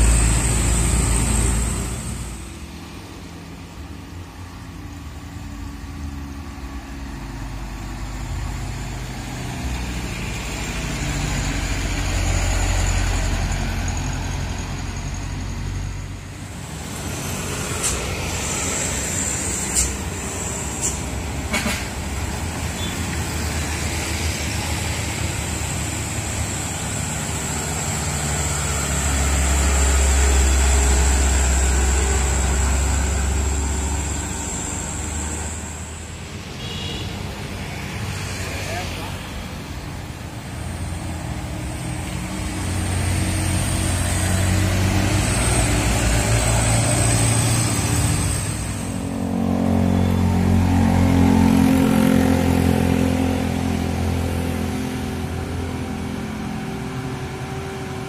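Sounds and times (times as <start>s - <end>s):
box truck engine passing close: 0.0s - 36.5s, 37.3s - 58.0s
road traffic passing: 0.0s - 58.0s
motorcycles passing: 22.0s - 58.0s.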